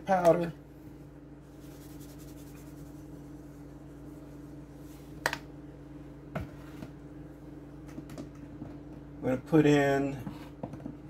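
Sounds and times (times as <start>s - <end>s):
low hum: 0.0s - 9.5s
spice shaken from container: 1.5s - 4.6s.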